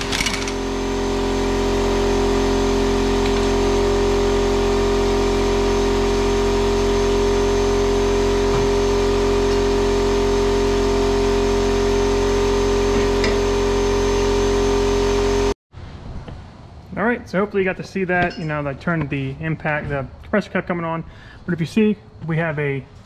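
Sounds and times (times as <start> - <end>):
air compressor motor droning: 0.0 - 15.6.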